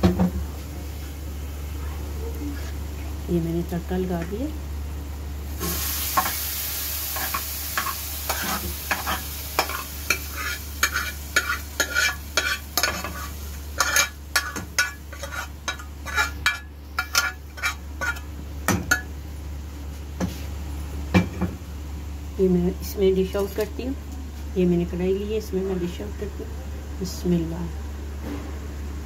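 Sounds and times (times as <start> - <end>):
oil sizzling: 5.3 - 19.4
ladle scraping a pan: 7.2 - 18.3.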